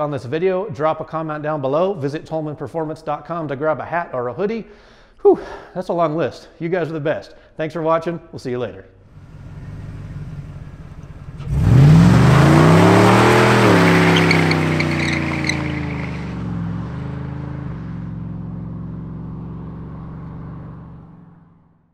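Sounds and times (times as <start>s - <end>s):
truck engine revving: 9.1s - 21.7s
tires squealing on asphalt: 9.2s - 21.2s.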